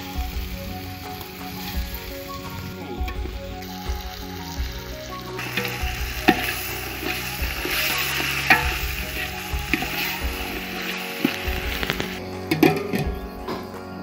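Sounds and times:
meat sizzling in a pot: 0.0 - 13.2.

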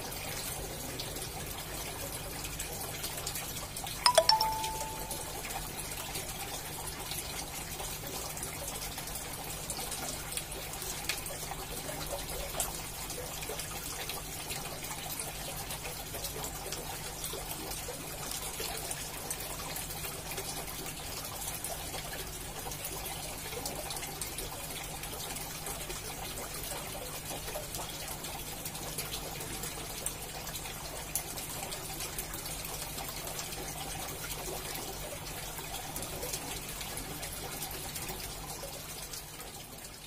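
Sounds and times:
aquarium airstone bubbling: 4.0 - 5.4
water trickling and splashing: 6.4 - 40.0.

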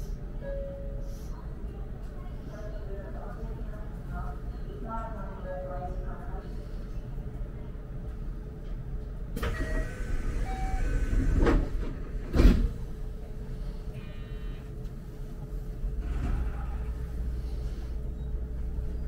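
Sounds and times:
train low rumble: 0.0 - 19.0
train doors sliding shut: 9.3 - 13.0, 15.8 - 18.4.

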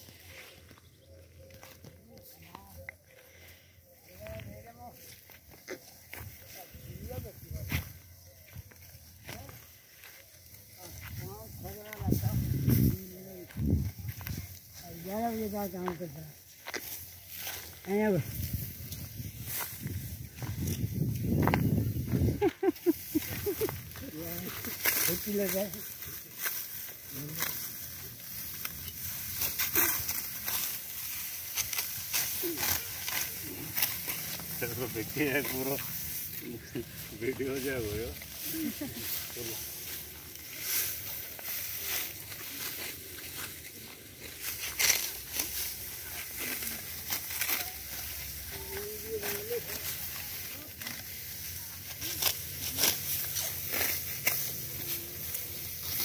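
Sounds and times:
dry straw rustling: 0.0 - 56.0
sickle cutting dry wheat stalks: 0.0 - 56.0.

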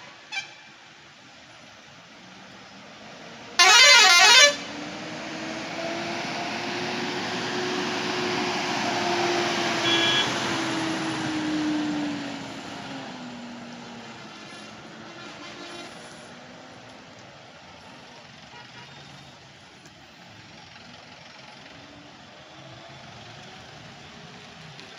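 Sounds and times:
warbling horn: 3.6 - 4.6.

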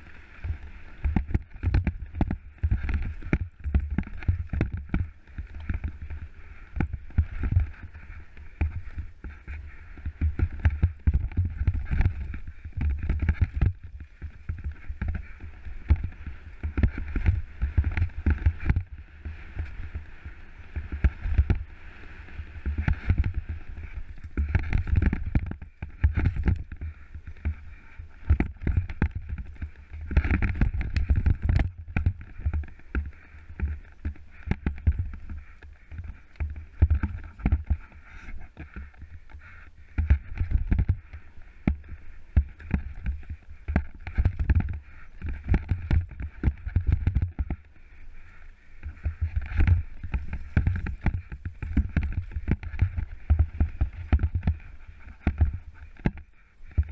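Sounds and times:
wind buffeting microphone: 0.0 - 56.9
bike clattering over rocks: 49.0 - 55.6.

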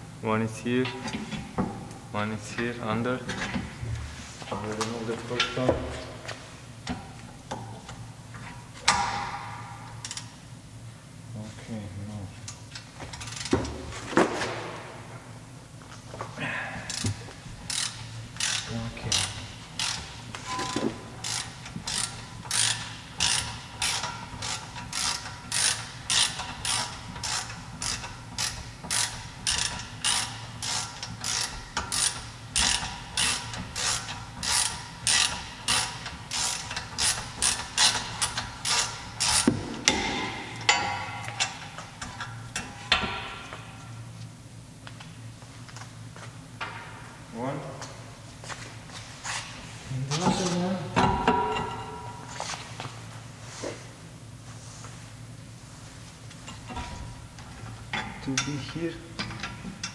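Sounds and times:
ratchet wrench clicking: 10.0 - 10.3, 17.7 - 20.1, 21.2 - 39.5.

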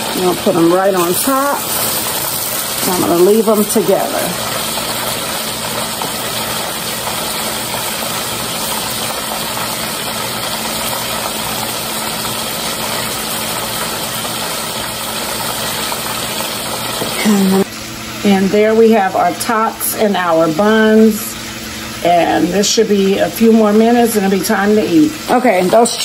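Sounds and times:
oil sizzling in deep fryer: 0.0 - 26.0.

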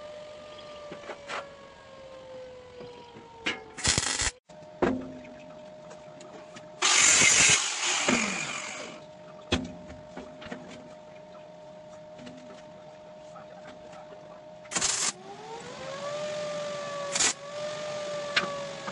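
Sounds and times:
welding arc crackling: 3.8 - 4.4, 6.8 - 9.0, 14.7 - 15.2, 17.1 - 17.4.

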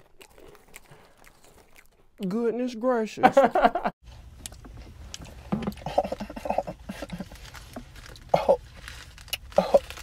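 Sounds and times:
low car interior hum: 4.1 - 10.0.

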